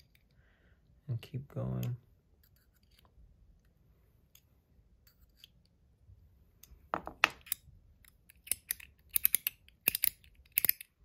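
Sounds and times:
metal fidget clicking: 8.3s - 11.0s.

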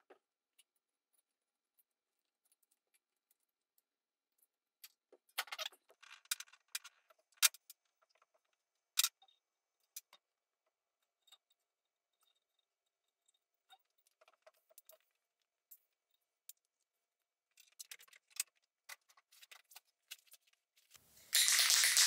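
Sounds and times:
small hard objects clinking: 21.2s - 22.0s.

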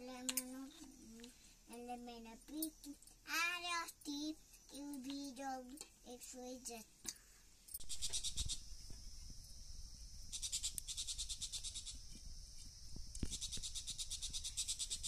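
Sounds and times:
insect trilling: 7.8s - 15.0s.

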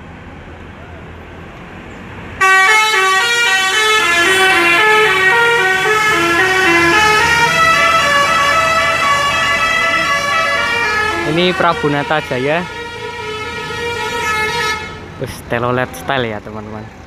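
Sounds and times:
low hum of bus engine: 0.0s - 17.0s
multi-tone air horn melody: 2.4s - 15.0s.

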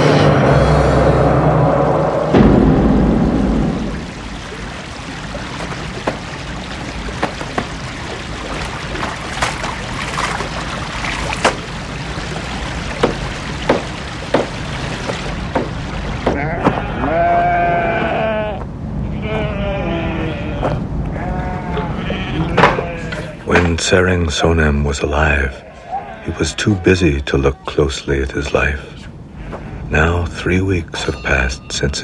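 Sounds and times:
stream running: 1.9s - 32.0s
cloth splashing in water: 4.1s - 16.2s
livestock bleating: 16.4s - 23.4s.

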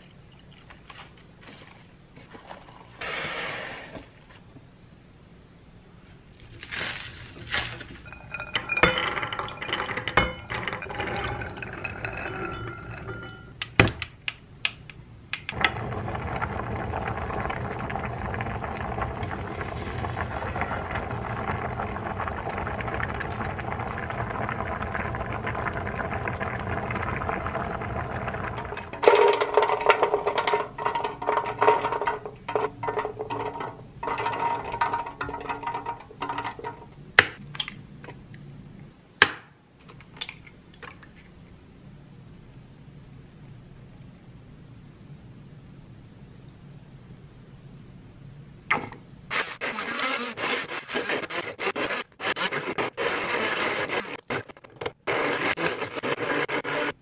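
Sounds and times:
pot boiling and bubbling: 7.3s - 13.8s, 15.5s - 37.5s, 48.7s - 57.0s.

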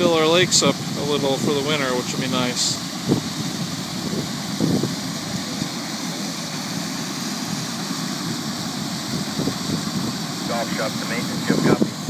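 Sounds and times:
water gushing from a drain: 0.0s - 12.0s.

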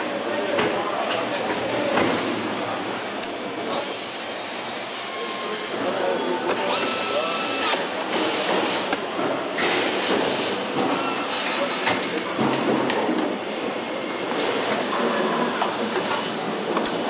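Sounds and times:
factory noise: 0.0s - 17.0s
air tool whirring: 3.7s - 5.8s, 6.6s - 8.8s
pneumatic tool hissing: 3.7s - 5.8s, 6.7s - 8.4s.

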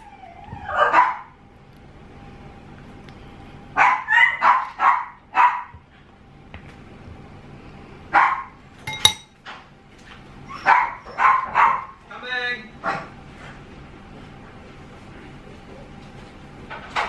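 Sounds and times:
dog barking: 0.6s - 1.4s, 3.8s - 5.8s, 8.1s - 8.6s, 10.6s - 12.0s
spoon clinking ceramic bowl: 8.9s - 9.4s.

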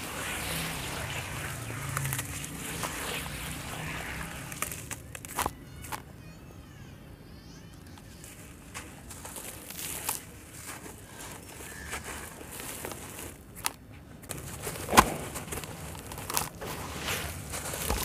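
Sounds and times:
gritty crunching and crackling: 0.0s - 6.1s, 7.8s - 18.0s
sharp cracks: 12.0s - 16.7s.

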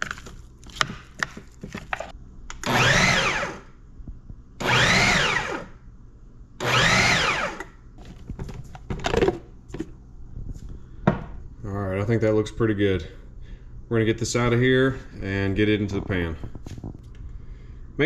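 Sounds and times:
food processor motor whine: 1.9s - 3.7s, 4.6s - 5.8s, 6.6s - 7.7s.

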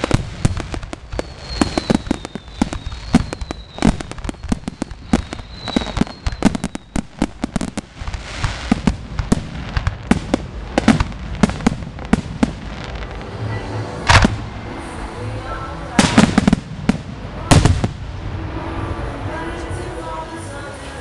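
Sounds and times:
fireworks bursting with sharp bangs: 0.0s - 20.2s.

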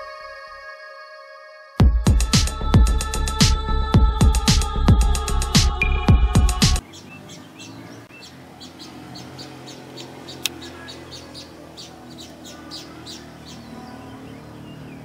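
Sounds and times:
birds chirping: 5.3s - 15.0s.

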